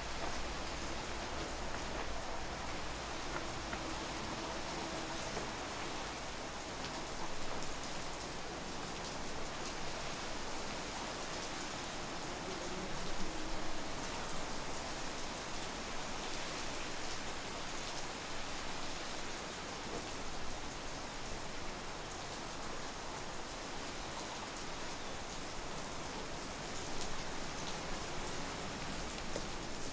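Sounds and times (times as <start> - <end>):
raindrop ticks: 0.0 - 9.8
steady rain hiss: 0.0 - 29.9.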